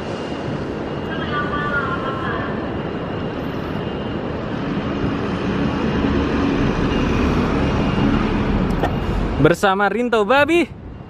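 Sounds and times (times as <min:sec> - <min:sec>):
city street traffic rumble: 0:00.0 - 0:11.0.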